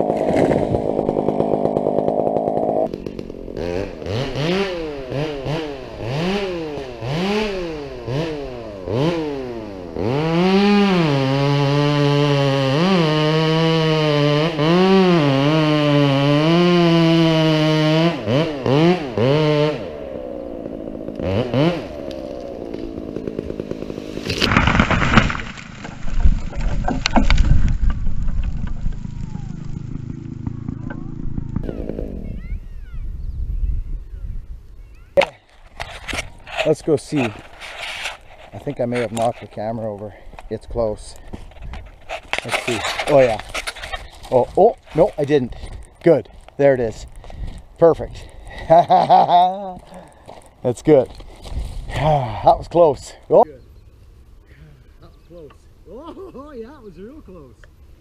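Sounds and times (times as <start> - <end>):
branches snapping: 0.0 - 8.3, 21.0 - 32.1, 40.3 - 48.5
chainsaw revving and cutting: 0.0 - 27.4, 28.5 - 32.2
tree hitting the ground: 21.2 - 32.2.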